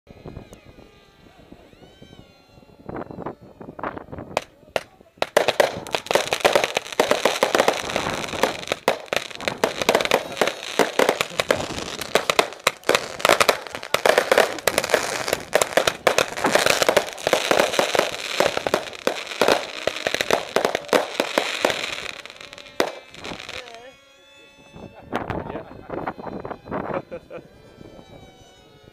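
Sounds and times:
fireworks crackling and popping: 0:03.7 - 0:24.4.

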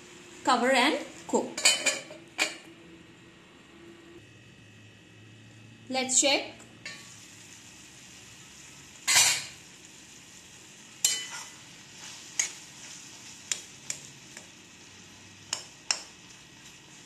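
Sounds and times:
faint sizzle: 0:00.0 - 0:17.0
spatula scraping a pan: 0:11.0 - 0:14.1.

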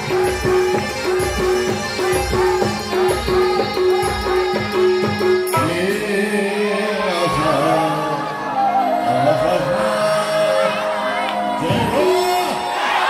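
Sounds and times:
steady drum beat: 0:00.0 - 0:05.9.

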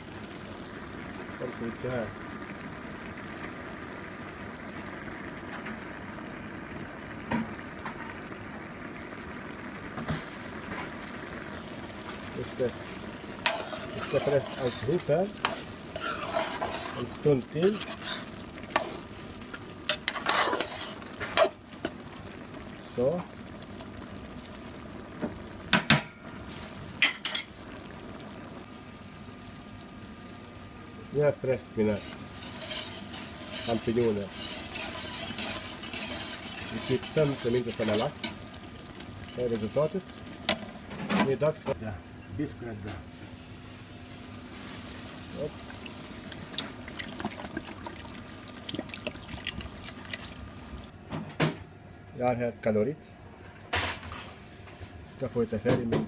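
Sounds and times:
mushrooms and onion simmering: 0:00.0 - 0:51.0
utensils clinking against a pot: 0:13.4 - 0:18.1, 0:32.0 - 0:38.4
liquid sloshing: 0:45.4 - 0:50.8.

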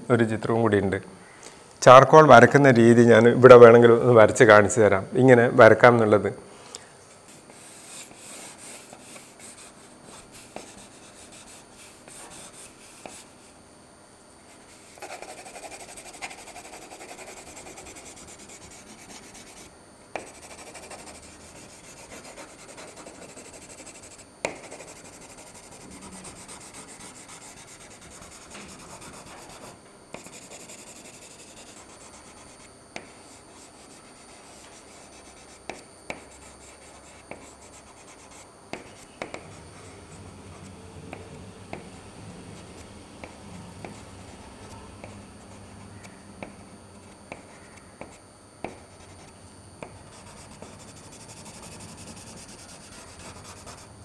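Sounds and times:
charcoal pencil scratching paper: 0:14.6 - 0:39.1, 0:50.1 - 0:53.9.

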